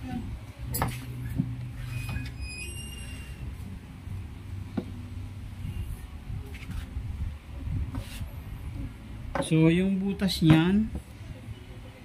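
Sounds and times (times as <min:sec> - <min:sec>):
steady low rumble: 0:03.4 - 0:09.4.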